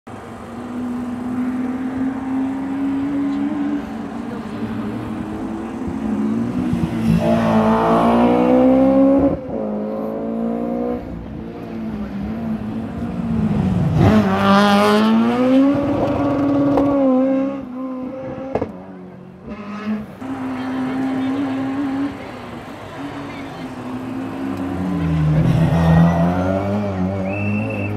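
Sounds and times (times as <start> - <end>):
rally car engine revving: 0.5 - 27.9.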